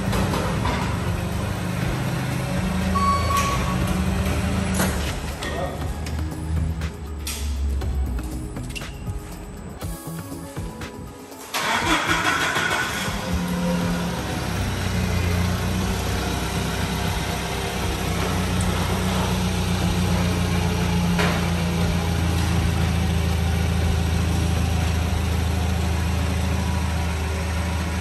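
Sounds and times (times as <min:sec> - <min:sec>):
forklift engine idling: 0:00.0 - 0:07.8, 0:11.6 - 0:28.0.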